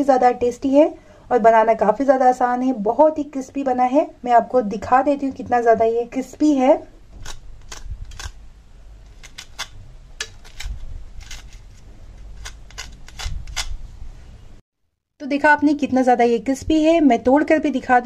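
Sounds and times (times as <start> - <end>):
knife crunching crispy crust: 7.2 - 8.4, 9.2 - 13.7.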